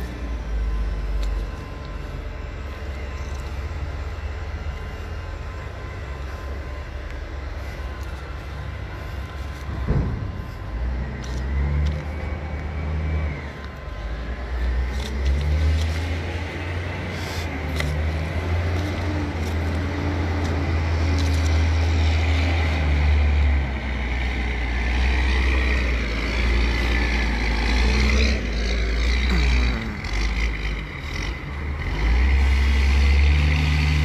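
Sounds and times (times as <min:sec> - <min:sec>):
diesel engine rumbling: 0:00.0 - 0:34.0
engine whine: 0:00.0 - 0:34.0
sharp knocks: 0:09.7 - 0:10.4.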